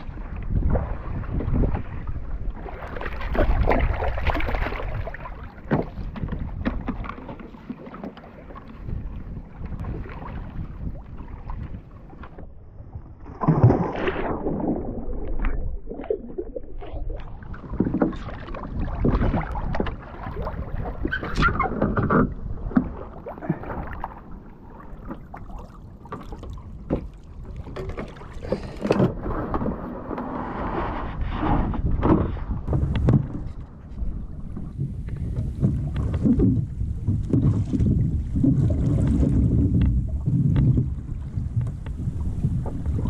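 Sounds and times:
wind on microphone: 0:00.0 - 0:07.5, 0:08.5 - 0:43.0
water slapping plastic hull: 0:00.0 - 0:43.0.

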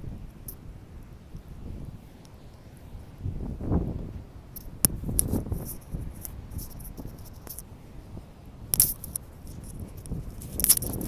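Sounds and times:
wind buffeting microphone: 0:00.0 - 0:11.0
clicks and crackles: 0:04.5 - 0:07.7, 0:08.7 - 0:11.0.

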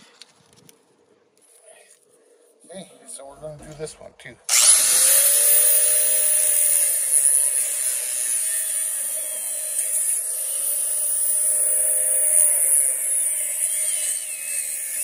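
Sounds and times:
angle grinder cutting metal: 0:04.5 - 0:15.0.

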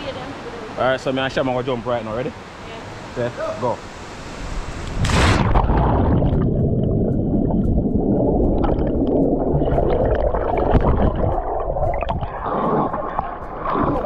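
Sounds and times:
underwater gurgling and bubbling: 0:05.4 - 0:14.0.

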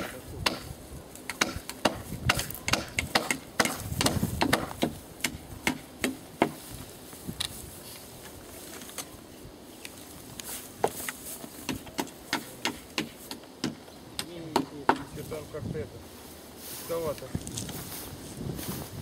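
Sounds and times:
hammer knocking nails into wood: 0:01.3 - 0:06.6, 0:14.5 - 0:15.1.

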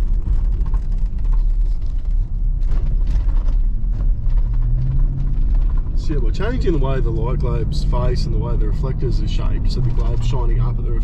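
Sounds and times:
small clicks and creaks: 0:00.0 - 0:06.2
engine and road noise rumble: 0:00.0 - 0:11.0.

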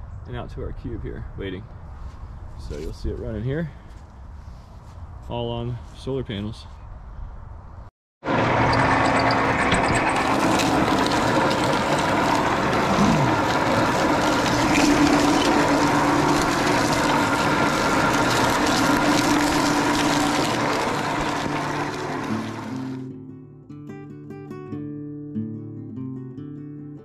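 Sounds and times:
machine hum and grinding: 0:08.2 - 0:23.1
cane stalks crackling: 0:08.5 - 0:23.0.

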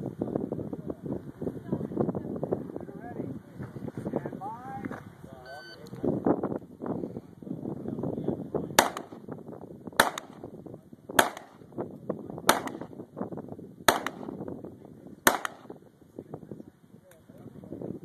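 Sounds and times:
pistol shots with echo: 0:08.8 - 0:09.3, 0:10.0 - 0:10.5, 0:11.2 - 0:11.7, 0:12.4 - 0:13.0, 0:13.9 - 0:14.4, 0:15.2 - 0:15.8.

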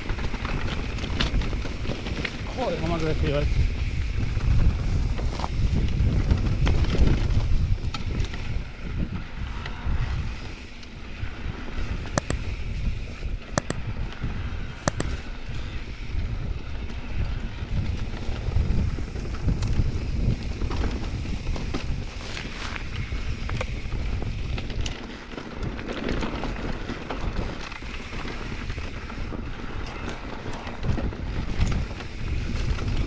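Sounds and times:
wind buffeting microphone: 0:00.0 - 0:25.0, 0:25.6 - 0:33.0
sharp clicks: 0:12.2 - 0:12.5, 0:13.6 - 0:13.8, 0:14.9 - 0:15.2
bike rattling over stones: 0:17.9 - 0:33.0.

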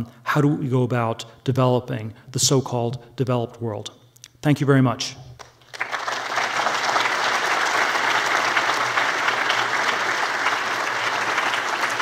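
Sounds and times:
large audience applauding: 0:05.4 - 0:12.0.

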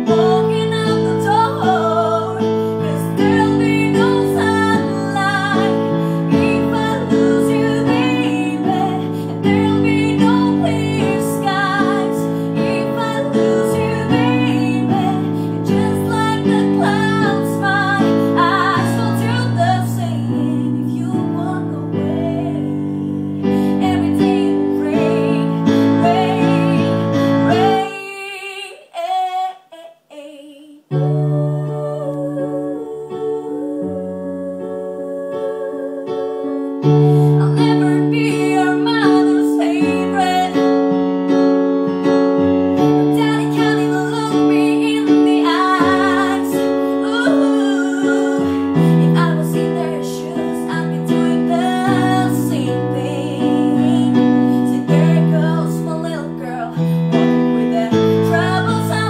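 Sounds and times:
keyboard piano chords: 0:00.0 - 0:28.2, 0:30.9 - 0:59.0
woman singing a pop ballad: 0:00.0 - 0:40.9, 0:42.8 - 0:59.0.

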